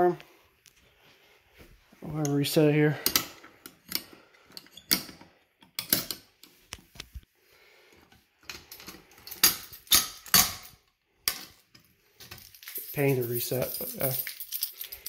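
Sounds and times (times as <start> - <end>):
keys jangling: 12.2 - 15.0.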